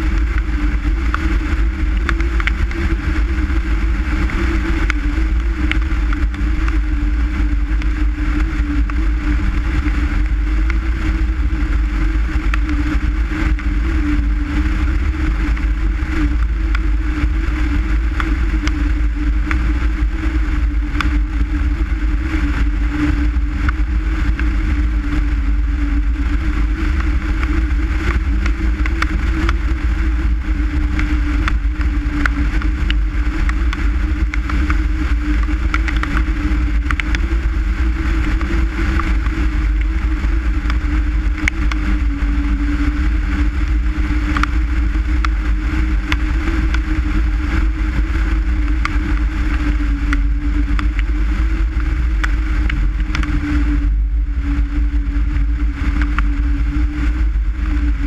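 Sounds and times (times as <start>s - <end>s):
car engine droning: 0.0s - 58.0s
road and tyre rumble: 0.0s - 58.0s.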